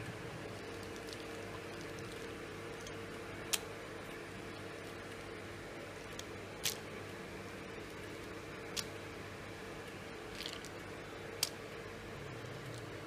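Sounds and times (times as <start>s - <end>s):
steady low hum: 0.0s - 13.0s
aluminium foil crackling: 0.5s - 3.6s.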